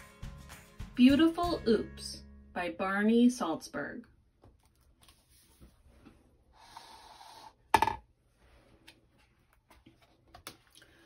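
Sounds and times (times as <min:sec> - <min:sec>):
pages being handled: 0:04.6 - 0:05.7.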